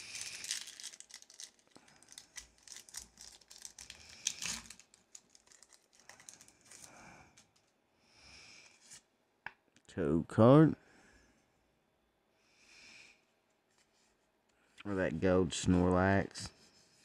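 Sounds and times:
foil wrapper crinkling: 0.0s - 7.0s.

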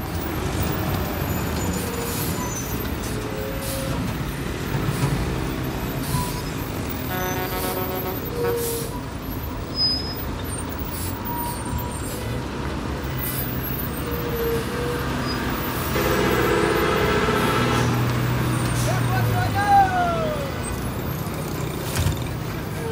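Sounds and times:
traffic engine rumble: 0.0s - 22.9s
air brakes hissing: 1.7s - 4.2s, 5.9s - 6.8s, 8.2s - 9.1s, 9.8s - 12.5s.

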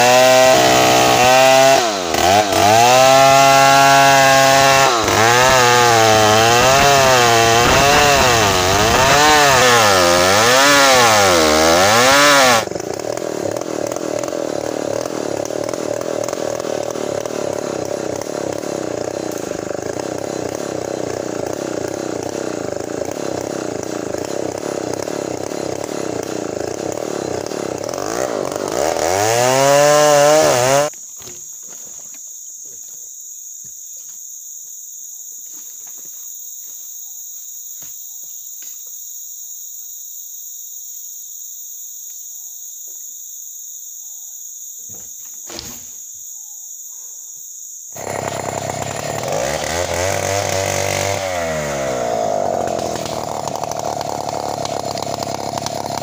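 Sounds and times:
chainsaw cutting log: 0.0s - 31.5s, 44.9s - 45.9s, 47.9s - 56.0s.

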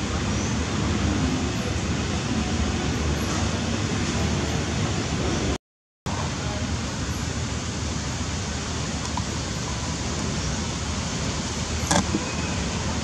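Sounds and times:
steady hiss: 6.1s - 13.0s.

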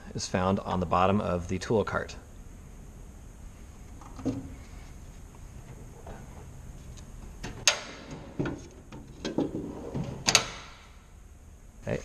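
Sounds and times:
steel drawer clanking and rattling: 7.5s - 10.8s.

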